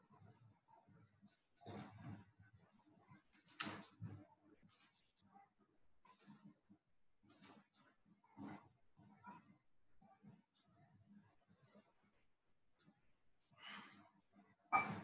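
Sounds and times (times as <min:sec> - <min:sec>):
soft clicks: 0:04.7 - 0:05.0, 0:06.0 - 0:06.4.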